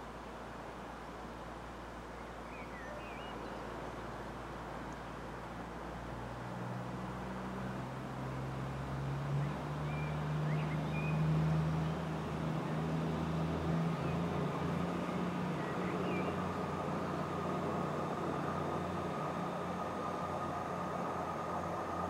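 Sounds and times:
diesel train engine hum: 11.7 - 22.0.

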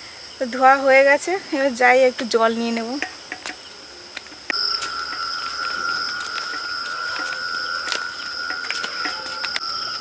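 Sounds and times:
crickets chirring: 0.0 - 10.0
metal plates and bowls clinking: 4.5 - 10.0.

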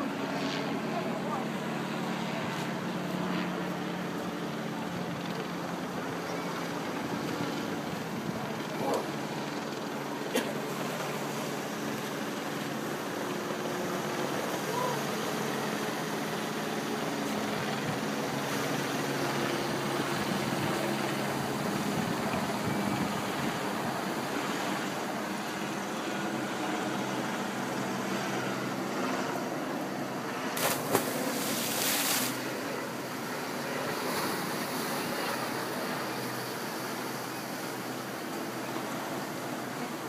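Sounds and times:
surf washing onto beach: 30.6 - 32.5.

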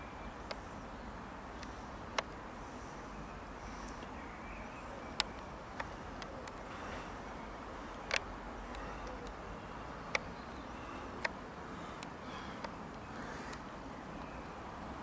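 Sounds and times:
sharp clicks: 1.6 - 2.4, 7.9 - 9.4.

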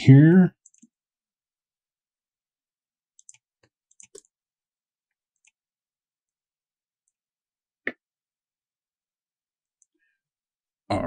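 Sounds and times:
mouse and keyboard clicks: 3.2 - 4.3.

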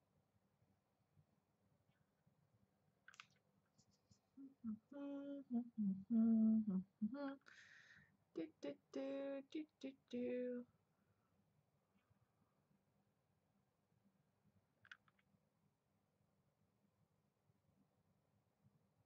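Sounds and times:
woman humming: 4.4 - 7.7, 8.4 - 10.6.

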